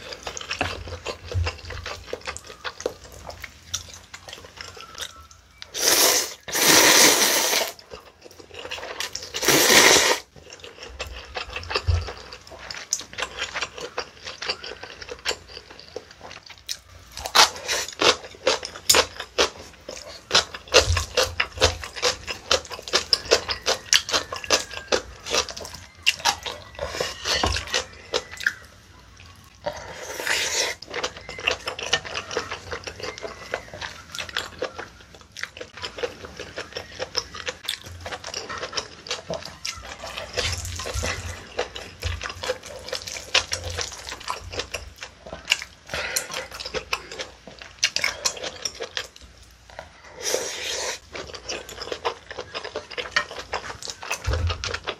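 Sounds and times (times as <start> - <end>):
person chewing close to microphone: 0.0 - 54.9
person slurping noodles: 5.8 - 7.8, 9.4 - 10.2, 29.7 - 30.8, 50.2 - 51.0.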